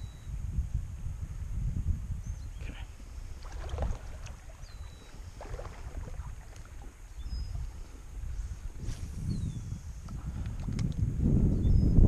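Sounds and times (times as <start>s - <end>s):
wind rumbling on microphone: 0.0s - 12.0s
wading in shallow water: 2.6s - 10.8s.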